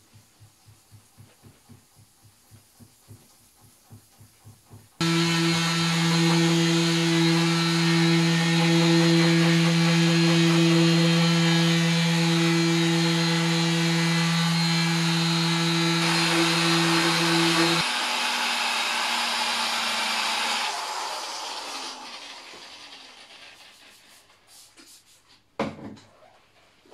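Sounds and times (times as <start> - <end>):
orbital sander running: 5.0 - 23.6
rotary polisher buffing: 5.0 - 24.1.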